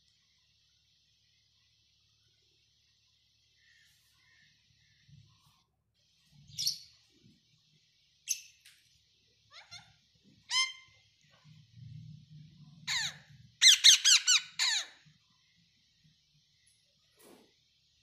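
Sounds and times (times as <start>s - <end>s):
parakeets squawking: 9.5s - 11.0s, 12.8s - 15.0s.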